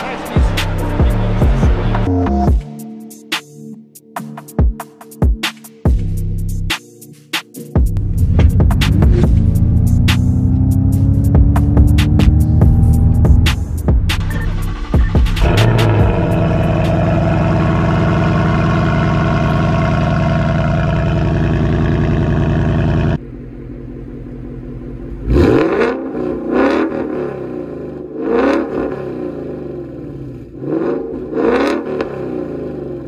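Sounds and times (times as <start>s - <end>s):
car engine revving: 7.9s - 33.0s
loud steady drone: 11.4s - 23.9s.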